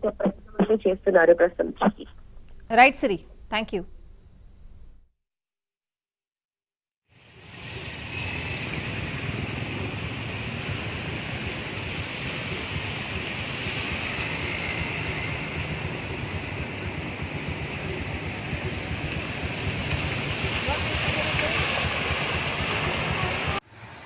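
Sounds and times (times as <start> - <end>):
car engines running: 7.2 - 24.0
traffic driving through floodwater: 7.2 - 24.0
water splashing under wheels: 7.6 - 23.6.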